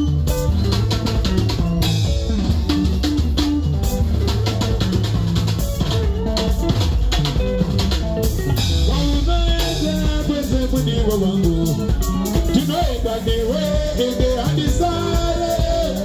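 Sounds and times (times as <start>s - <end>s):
drum kit dance beat: 0.0s - 16.0s
electric bass: 0.0s - 16.0s
electric guitars: 0.0s - 16.0s
man singing: 8.8s - 16.0s.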